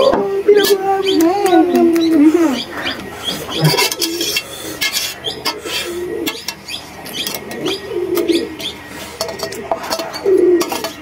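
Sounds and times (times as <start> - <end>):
low cooing sounds: 0.0 - 11.0
spoon scraping steel plate: 3.6 - 11.0.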